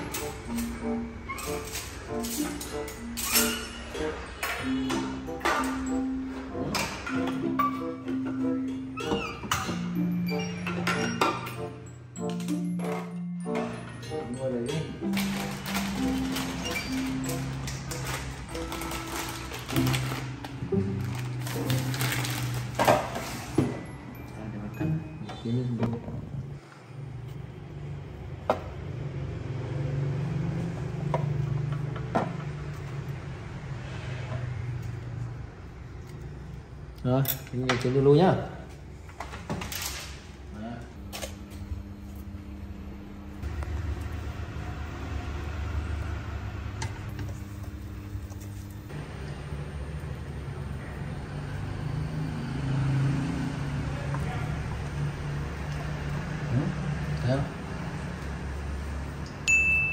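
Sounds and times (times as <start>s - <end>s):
induction cooktop humming: 38.1s - 51.4s.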